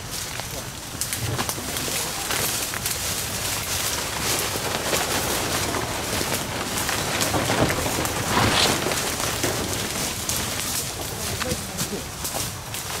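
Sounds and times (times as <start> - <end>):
footsteps crunching dry leaves: 0.0 - 13.0
fronds rustling and scraping: 0.0 - 13.0.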